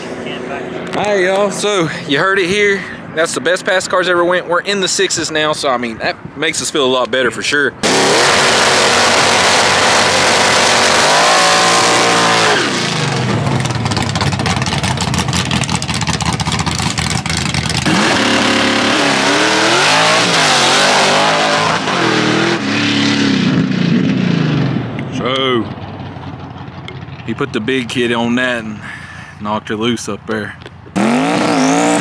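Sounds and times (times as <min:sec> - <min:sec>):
drag car engine revving: 0:07.8 - 0:27.4, 0:30.9 - 0:32.0.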